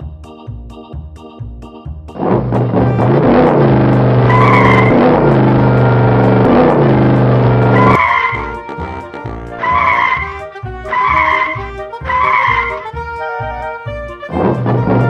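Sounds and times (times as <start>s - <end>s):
organ-like music: 0.0s - 15.0s
motorcycle engines running: 2.2s - 10.4s, 14.3s - 15.0s
tyre squeal: 4.2s - 6.7s, 11.0s - 12.8s.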